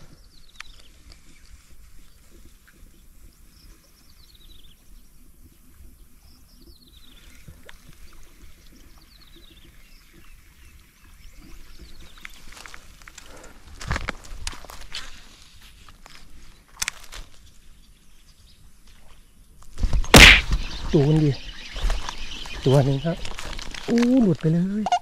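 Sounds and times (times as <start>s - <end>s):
clicks and rustles: 12.2s - 15.2s, 15.9s - 17.4s, 23.2s - 24.6s.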